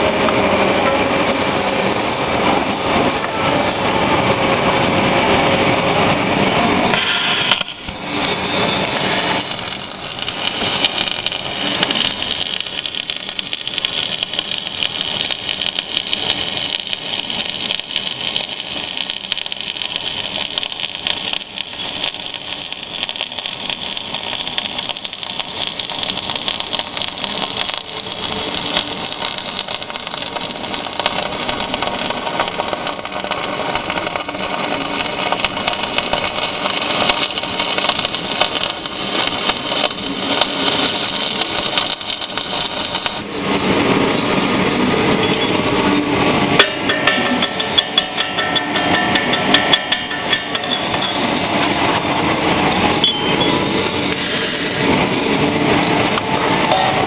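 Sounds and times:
welding arc sizzling crackle: 0.0s - 57.0s.

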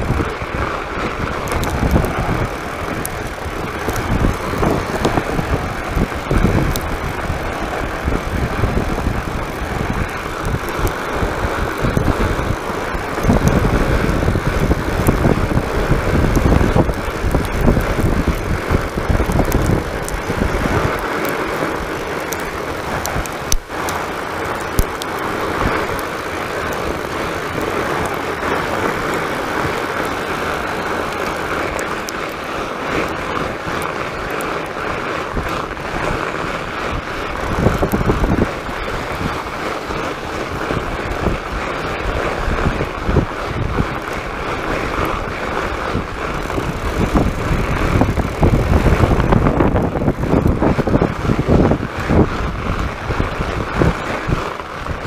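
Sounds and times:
bike tire rolling on snow: 0.0s - 55.0s
low microphone rumble: 0.0s - 55.0s
ticks and knocks over bumps: 1.2s - 32.4s.

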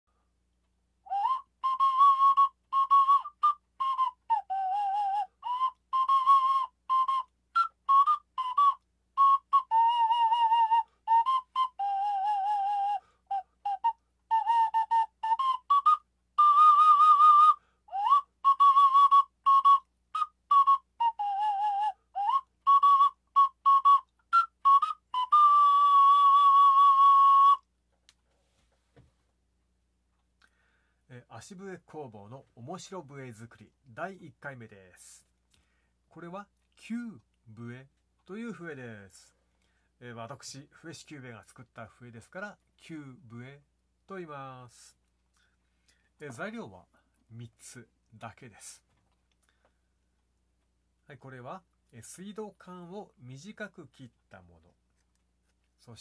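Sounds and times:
whistle playing a tune: 1.1s - 27.7s.

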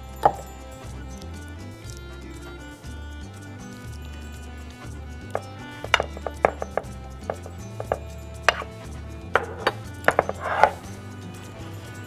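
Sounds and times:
quiet background music: 0.0s - 12.0s
metal spoon clinking on ceramic plate: 5.3s - 10.8s.

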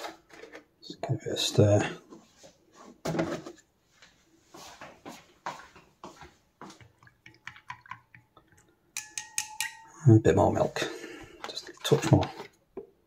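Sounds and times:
chopstick tapping glass: 9.0s - 10.0s.

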